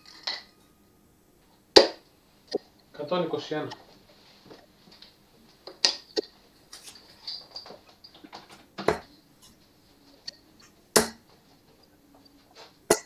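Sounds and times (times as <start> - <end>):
darts thudding into dartboard: 11.0 - 11.2.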